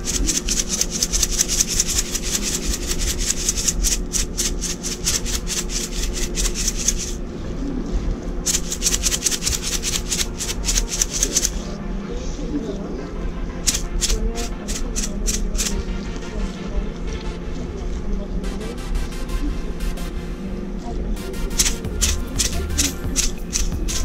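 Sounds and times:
hand rubbing fish skin: 0.0s - 7.2s, 8.5s - 11.8s, 13.7s - 15.8s.

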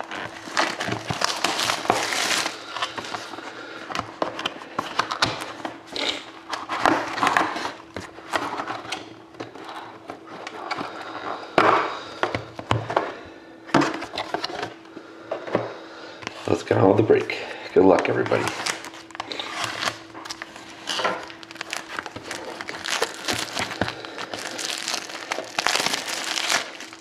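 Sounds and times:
shrink-wrap crinkling and crackling: 0.0s - 3.4s, 17.8s - 27.0s.

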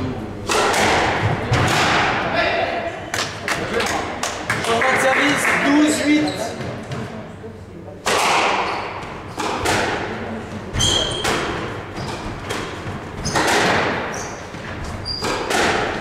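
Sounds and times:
squash ball hitting rackets and walls: 0.4s - 2.4s, 8.0s - 16.0s
sneaker squeaks on wooden floor: 6.1s - 6.8s, 8.6s - 9.2s, 10.7s - 12.4s, 13.2s - 15.5s.

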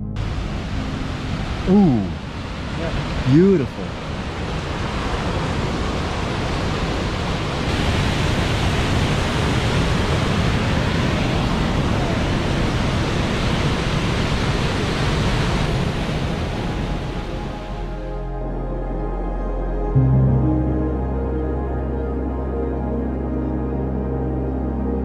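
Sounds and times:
white water rushing: 0.1s - 18.4s.

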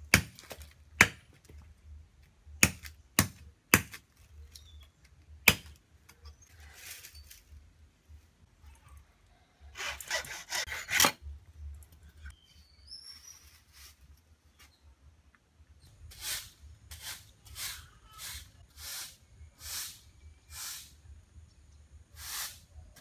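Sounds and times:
machete chop into wood: 0.1s - 1.3s, 2.6s - 4.0s, 5.4s - 5.8s
broom scraping: 6.5s - 7.5s, 13.2s - 14.2s, 16.1s - 20.9s.

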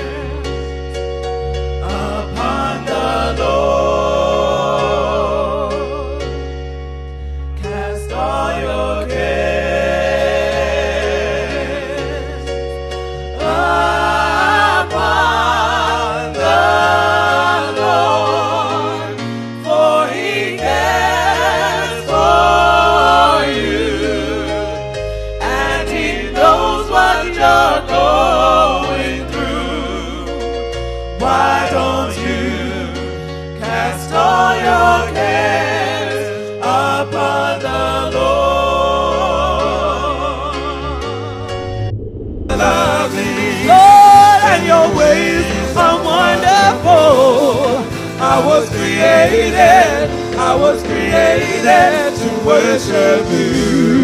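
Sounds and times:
gospel singing with vibrato: 0.0s - 54.0s
steady bass notes: 38.3s - 54.0s
sustained chords: 39.1s - 47.6s.

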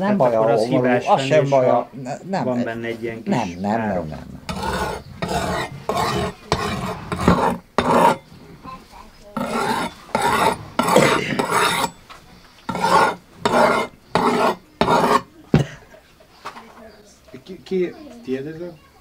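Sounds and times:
knife rasping on whetstone: 4.4s - 8.3s, 9.4s - 15.3s.

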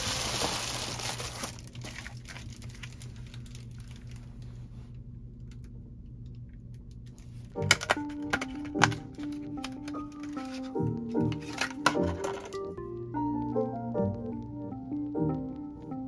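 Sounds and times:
plastic mailer crinkling: 0.0s - 4.5s, 7.7s - 12.8s
faint low hum: 0.0s - 16.0s.

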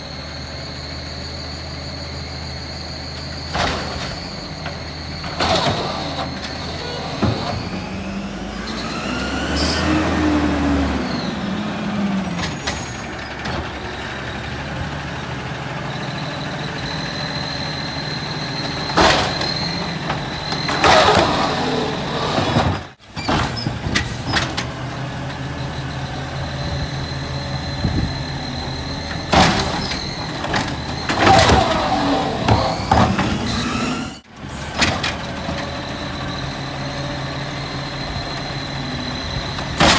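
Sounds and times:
garbage truck running: 0.0s - 39.9s
hydraulic whine: 0.0s - 39.9s
bins banging against hopper: 3.4s - 8.0s, 18.6s - 24.8s, 29.0s - 36.4s, 39.4s - 39.9s.

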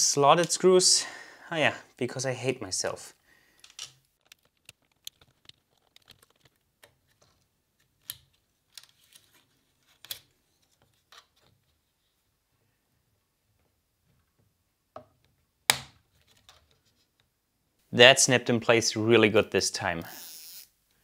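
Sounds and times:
plastic parts clicking: 3.6s - 11.6s.

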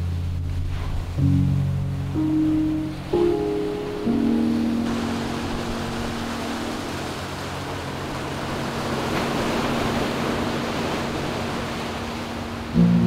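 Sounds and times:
waves breaking on beach: 0.0s - 13.0s.

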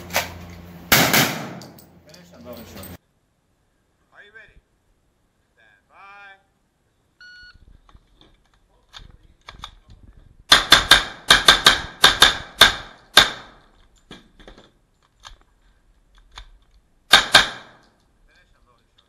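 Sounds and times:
rapid gunshots: 10.5s - 13.6s, 17.1s - 17.8s.

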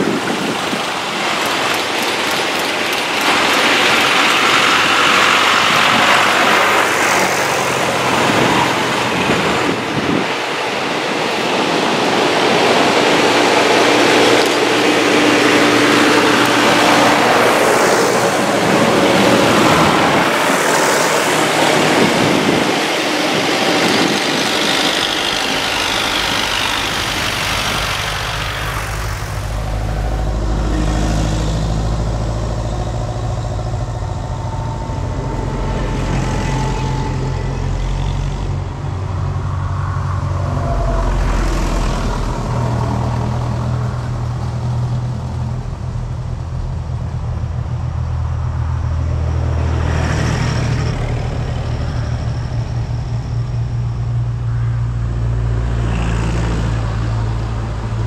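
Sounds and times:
loud rushing hiss: 0.0s - 31.4s
tractors driving past: 0.0s - 58.0s.

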